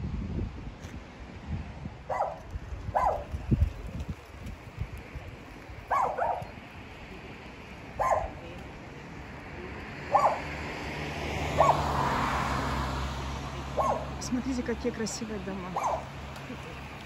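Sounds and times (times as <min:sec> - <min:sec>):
dog barking: 0:02.1 - 0:03.3, 0:05.9 - 0:06.5, 0:08.0 - 0:08.4, 0:10.1 - 0:10.5, 0:11.6 - 0:11.9, 0:13.8 - 0:14.2, 0:15.8 - 0:16.1.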